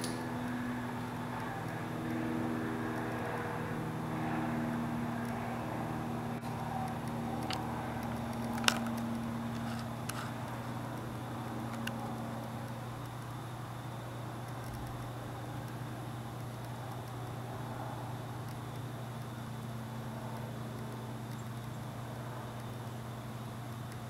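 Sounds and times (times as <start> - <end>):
low machine hum: 0.0 - 24.0
light clicks: 18.4 - 21.9.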